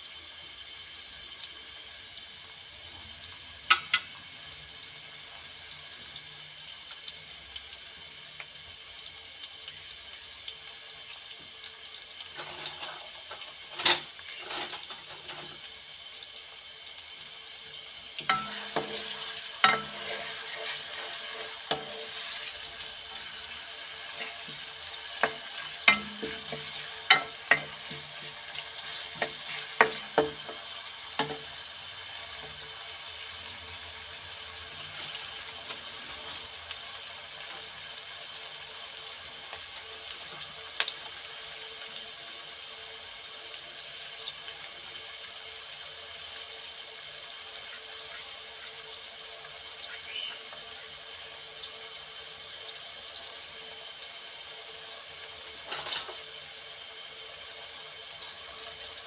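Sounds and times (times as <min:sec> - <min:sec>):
onions sizzling in oil: 0:00.0 - 0:59.0
wooden spoon scraping a pan: 0:12.3 - 0:15.7, 0:18.3 - 0:31.5.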